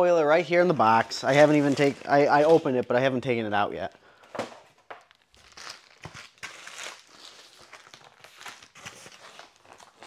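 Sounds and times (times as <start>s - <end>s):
plastic wrap crinkling: 1.2s - 2.7s, 4.7s - 10.0s.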